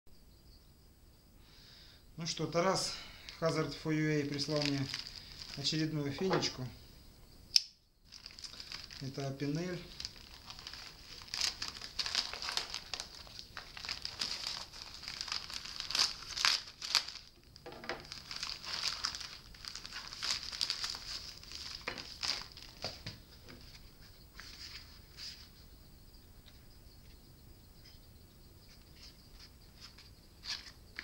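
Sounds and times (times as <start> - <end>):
plastic bag cut and torn: 9.9 - 17.3.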